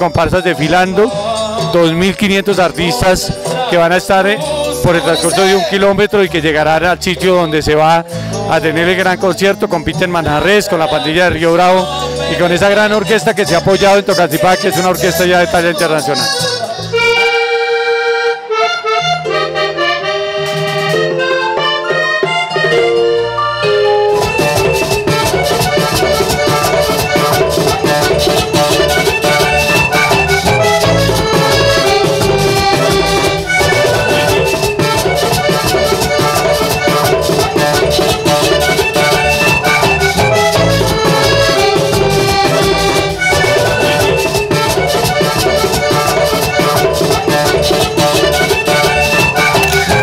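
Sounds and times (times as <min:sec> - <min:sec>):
button accordion: 0:00.0 - 0:50.0
hand drum beat: 0:24.2 - 0:50.0.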